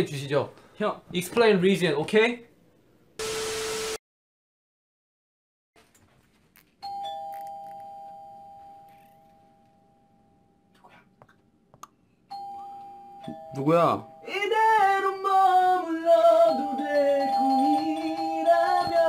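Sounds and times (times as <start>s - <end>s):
doorbell ding-dong: 12.3s - 14.4s.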